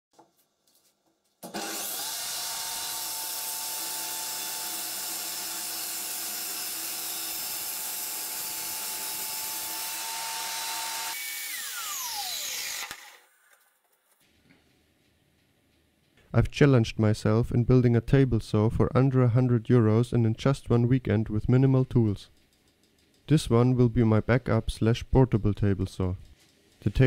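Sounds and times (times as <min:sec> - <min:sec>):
circular saw whining: 0:01.4 - 0:13.3
saw cutting plywood: 0:01.4 - 0:13.3.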